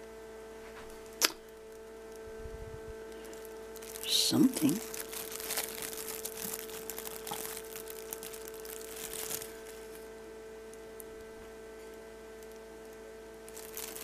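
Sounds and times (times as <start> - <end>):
electrical hum: 0.0 - 14.0
plastic crinkling: 3.0 - 14.0.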